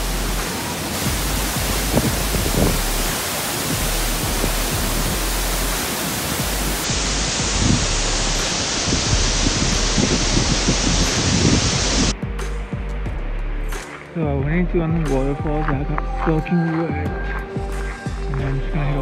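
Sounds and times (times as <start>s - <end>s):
waterfall rushing: 0.0s - 12.1s.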